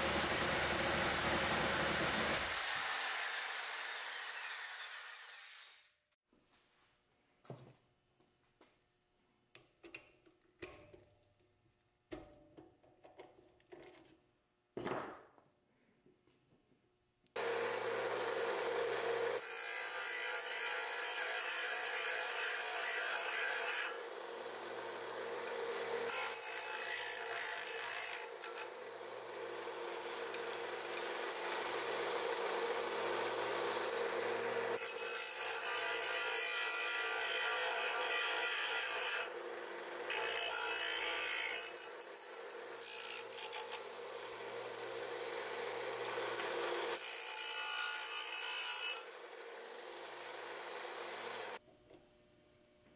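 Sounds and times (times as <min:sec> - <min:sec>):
sander grinding brass: 0:00.0 - 0:05.8.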